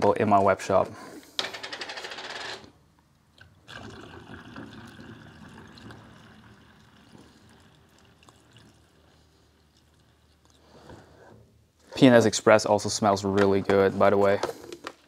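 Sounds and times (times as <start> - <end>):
liquid trickling through funnel: 3.4 - 10.8.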